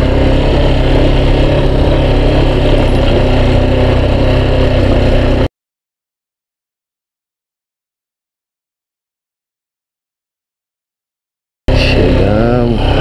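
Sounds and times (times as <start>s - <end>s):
motorcycle engine running: 0.0s - 5.5s, 11.7s - 13.0s.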